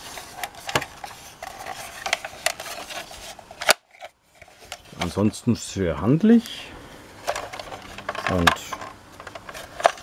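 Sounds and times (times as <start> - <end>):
plastic toy rubbing and clicking: 0.0 - 5.1, 7.3 - 10.0.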